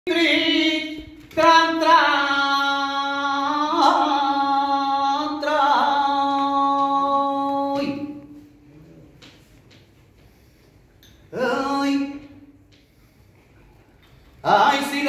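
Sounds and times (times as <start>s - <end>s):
man singing unaccompanied: 0.1s - 8.4s, 11.3s - 12.5s.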